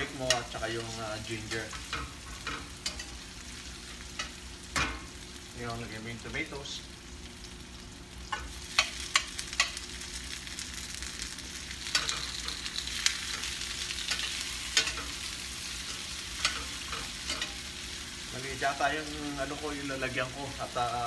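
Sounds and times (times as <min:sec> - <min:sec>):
onions sizzling in a skillet: 0:00.0 - 0:21.0
metal tongs clicking on pan: 0:00.2 - 0:00.6, 0:01.5 - 0:03.2, 0:08.3 - 0:09.8, 0:11.8 - 0:12.6, 0:13.3 - 0:15.2, 0:15.9 - 0:17.6.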